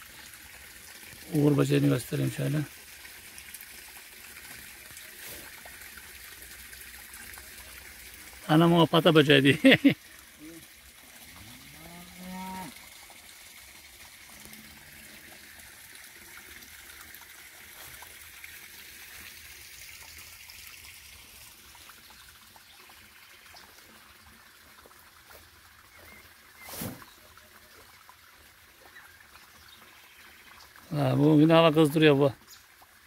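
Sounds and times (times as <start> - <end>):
faint trickle of running water: 0.0 - 33.0
cow mooing: 11.4 - 12.8.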